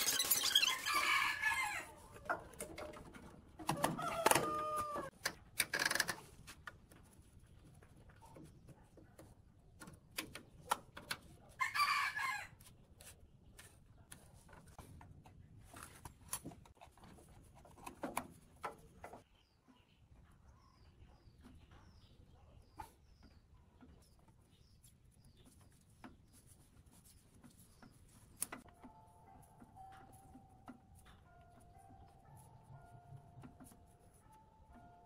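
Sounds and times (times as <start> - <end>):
rooster calling: 3.8 - 5.1.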